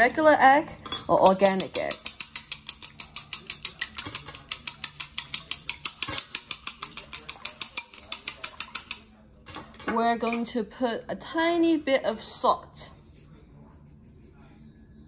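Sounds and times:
chopsticks clicking against bowl: 1.4s - 9.0s.

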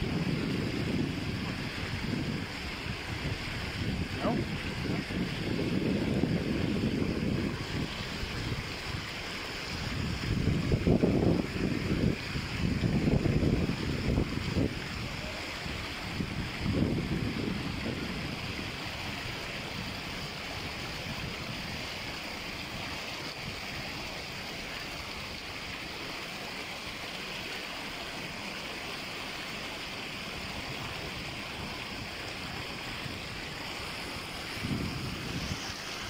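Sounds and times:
stream water over rocks: 0.0s - 36.0s.

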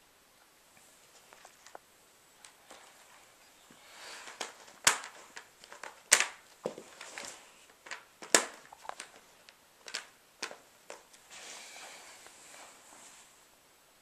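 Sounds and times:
plastic track pieces snapping together: 4.3s - 6.4s, 7.0s - 9.2s, 9.8s - 11.1s.

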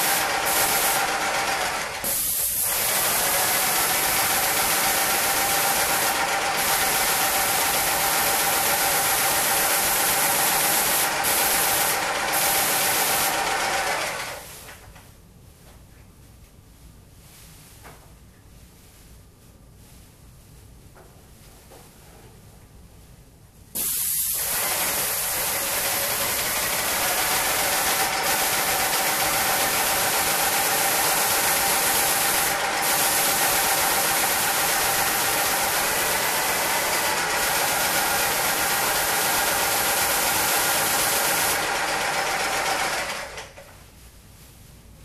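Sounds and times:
paint sprayer hissing: 0.0s - 14.8s, 23.7s - 43.6s.

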